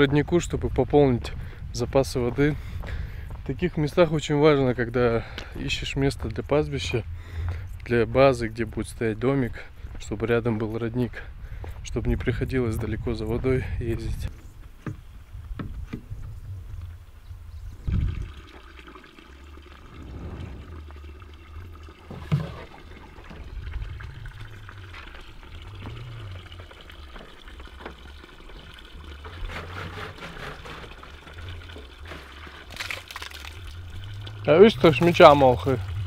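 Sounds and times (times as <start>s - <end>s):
spring water running: 17.8s - 36.0s.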